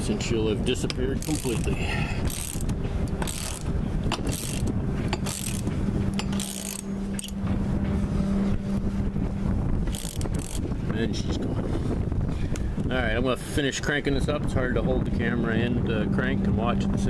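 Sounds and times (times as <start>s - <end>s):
steady low hum: 0.0s - 17.0s
ratchet wrench clicking: 0.8s - 7.4s, 9.9s - 10.6s.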